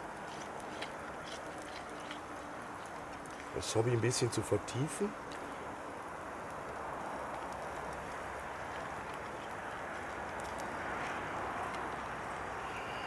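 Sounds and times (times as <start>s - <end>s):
fire crackles: 0.0s - 13.0s
camp stove hissing: 5.0s - 13.0s.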